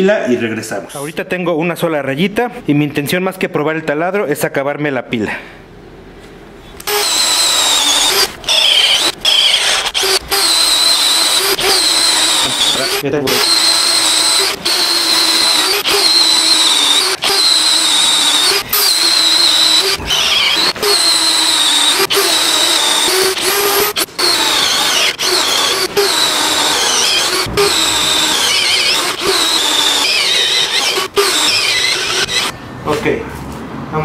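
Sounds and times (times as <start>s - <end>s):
cordless drill boring into wood: 6.8s - 32.5s.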